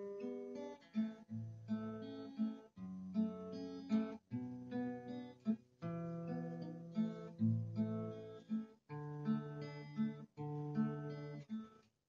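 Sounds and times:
fingerstyle acoustic guitar: 0.0s - 11.9s.

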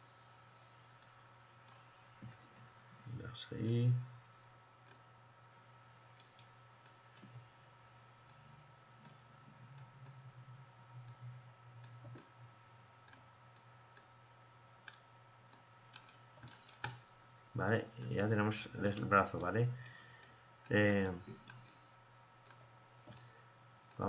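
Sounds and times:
low steady hum: 0.0s - 24.0s
computer mouse clicks: 1.0s - 2.4s, 6.1s - 7.5s, 14.8s - 17.0s, 21.0s - 21.8s, 22.4s - 23.3s.

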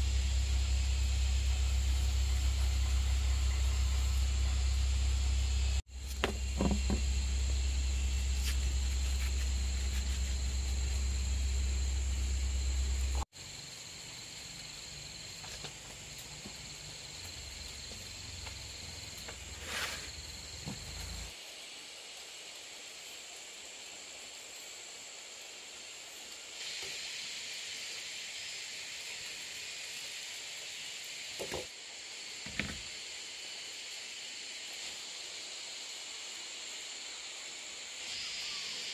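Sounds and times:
low hum: 0.0s - 13.2s
insect chorus: 0.0s - 38.9s.

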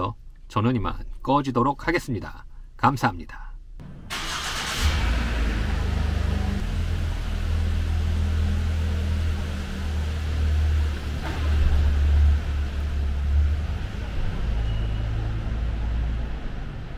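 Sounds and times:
van engine rumbling past: 3.8s - 16.9s.

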